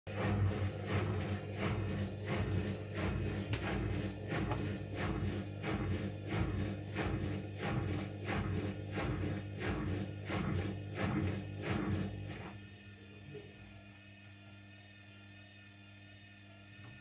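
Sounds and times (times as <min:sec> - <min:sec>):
laundry sloshing in drum: 0:00.1 - 0:12.6
washing machine motor hum: 0:00.1 - 0:17.0.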